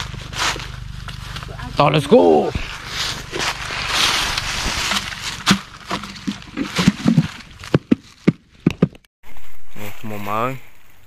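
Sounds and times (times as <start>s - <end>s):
dry leaves crunching underfoot: 0.0s - 8.3s.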